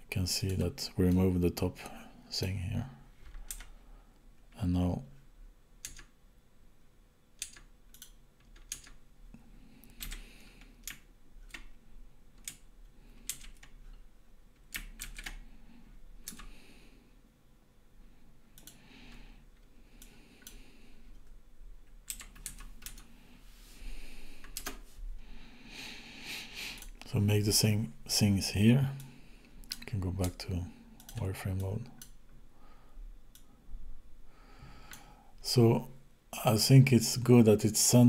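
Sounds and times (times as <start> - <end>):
computer keyboard keys clicking: 3.4 - 3.7, 5.8 - 6.1, 7.4 - 9.0, 10.0 - 10.2, 13.2 - 13.8, 14.6 - 15.4, 16.2 - 16.5, 22.0 - 23.1, 24.4 - 24.8.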